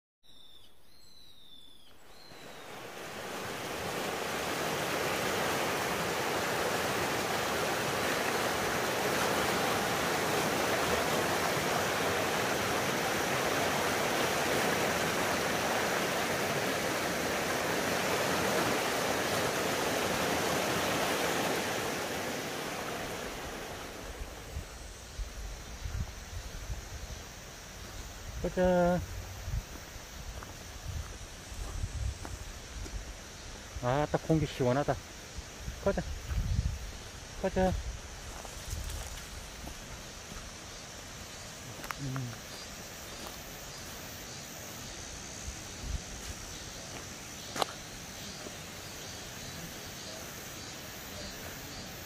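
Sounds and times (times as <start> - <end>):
bird chirping: 0.2 - 3.0
stream rushing over rocks: 2.3 - 24.8.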